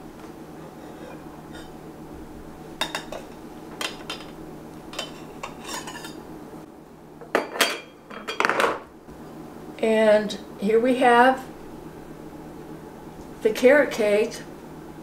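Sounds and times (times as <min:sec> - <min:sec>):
utensils clattering: 0:02.8 - 0:06.2
knife scraping metal pan: 0:05.0 - 0:06.2.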